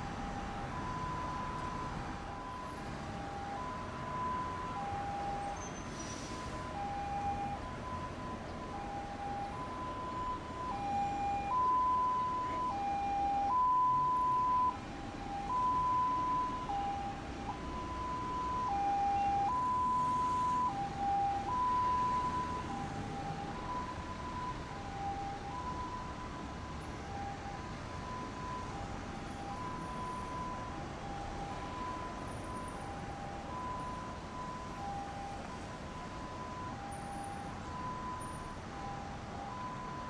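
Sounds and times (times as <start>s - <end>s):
traffic noise: 0.0s - 40.0s
two-tone ambulance siren: 0.0s - 40.0s.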